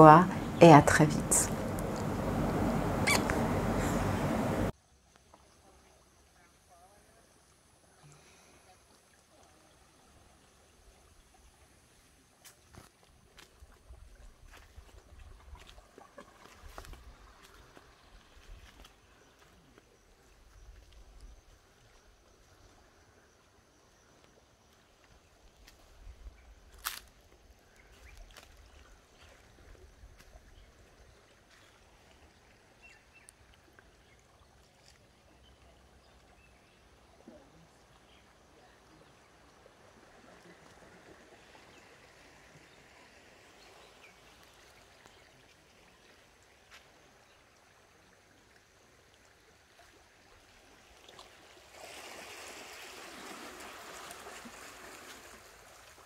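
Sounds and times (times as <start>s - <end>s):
rush of water: 0.0s - 4.8s, 27.8s - 56.0s
faint running water: 0.0s - 56.0s.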